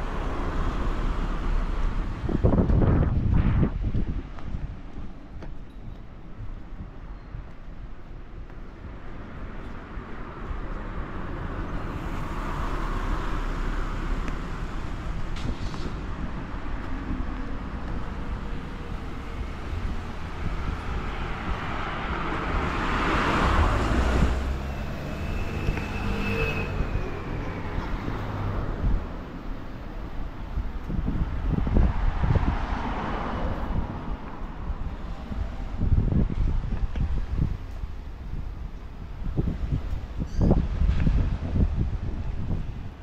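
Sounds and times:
road traffic passing: 0.0 - 43.0
vehicle passing close: 10.8 - 36.3.

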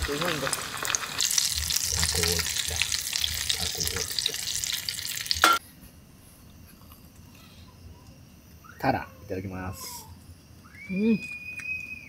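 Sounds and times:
skewers sizzling in hot oil: 0.0 - 5.6.

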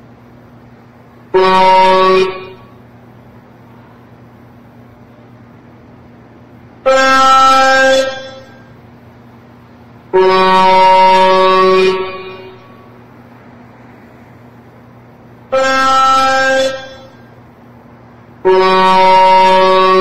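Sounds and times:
highway traffic noise: 0.0 - 20.0
truck horn blasts: 1.3 - 2.9, 6.8 - 8.8, 10.0 - 13.0, 15.5 - 17.4, 18.4 - 20.0.

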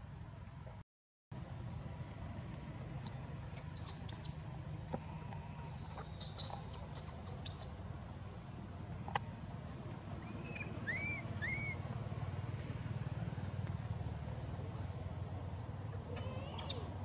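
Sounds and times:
baby monkey squeaking: 3.6 - 4.4, 6.0 - 7.8, 10.2 - 11.8, 16.1 - 16.9.

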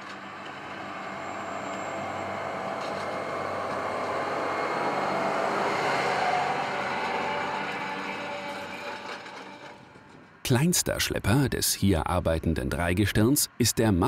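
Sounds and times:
tractor engine hum: 0.0 - 9.9.

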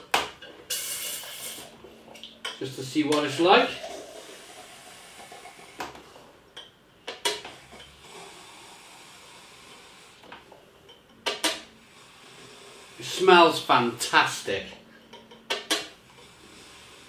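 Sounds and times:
soft steady hiss: 0.0 - 17.0.

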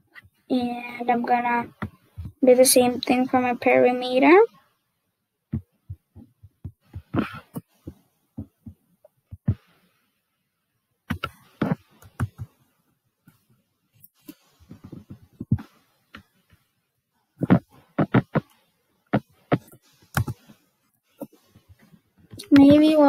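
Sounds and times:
keyboard key taps: 20.2 - 20.4.

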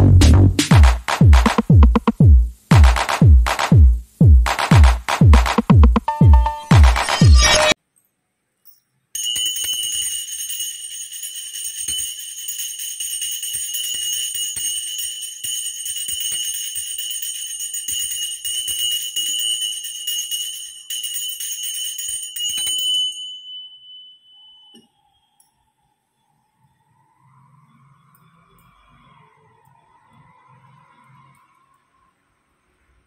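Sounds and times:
hand bell ringing: 9.2 - 25.0.

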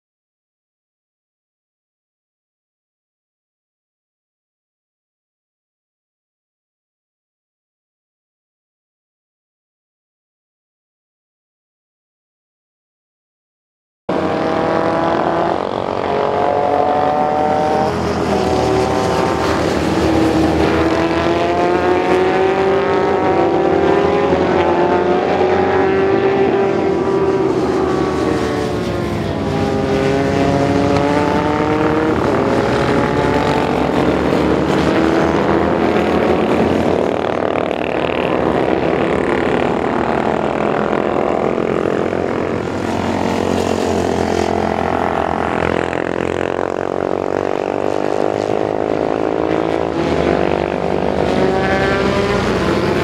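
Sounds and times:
racing motorcycle engines revving: 14.1 - 53.0.

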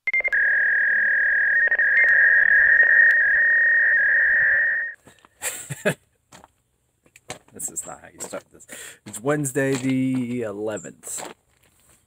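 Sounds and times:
long high electronic tone: 0.1 - 5.0.

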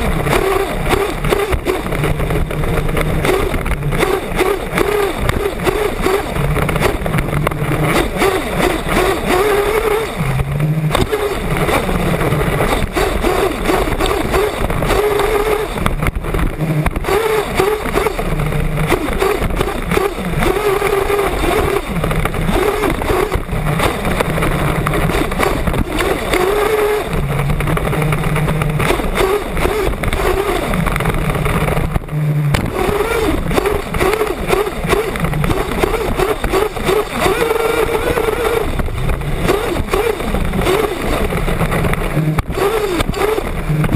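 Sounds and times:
small nitro engine revving: 0.0 - 43.9
steady rush of noise: 0.0 - 43.9.

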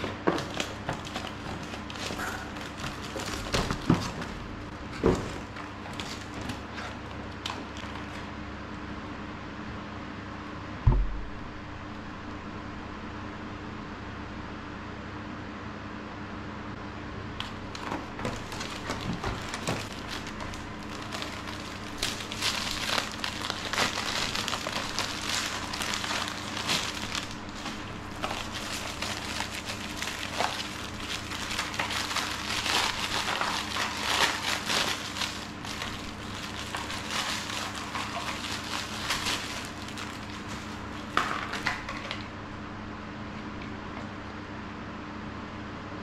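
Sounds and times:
plastic bag crinkling: 0.0 - 8.4, 17.4 - 42.3.

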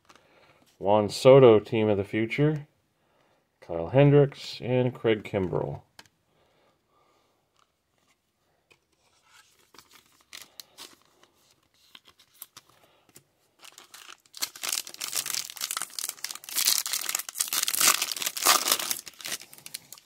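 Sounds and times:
foil wrapper tearing and crinkling: 13.6 - 20.0.

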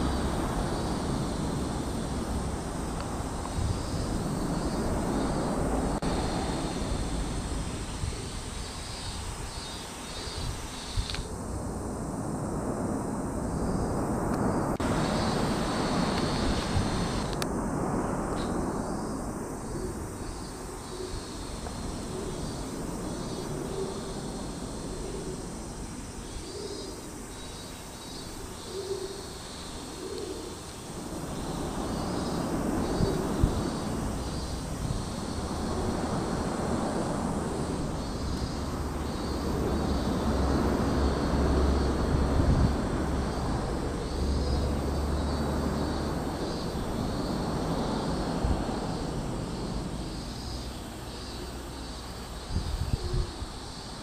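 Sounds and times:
low cooing bird call: 19.7 - 21.4, 22.0 - 24.2, 26.3 - 30.7.

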